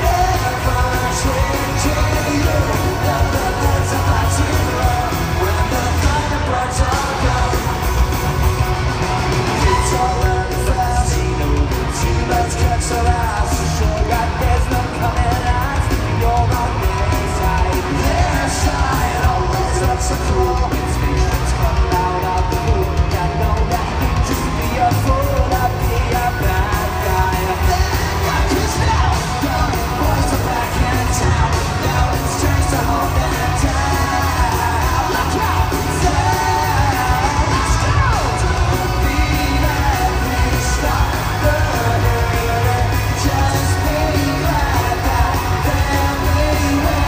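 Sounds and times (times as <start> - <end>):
live rock band playing: 0.0 - 47.0
person yelling: 9.6 - 10.2.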